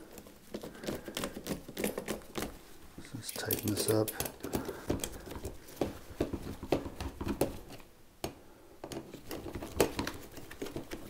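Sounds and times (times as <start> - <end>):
screwdriver clicking and scraping metal: 3.3 - 5.2.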